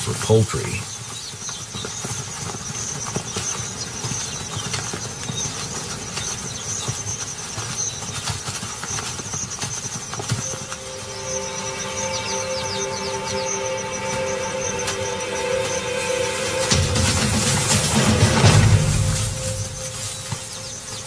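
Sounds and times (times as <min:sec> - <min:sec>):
outdoor hiss: 0:10.4 - 0:21.0
ostrich footfalls in grass: 0:16.4 - 0:21.0.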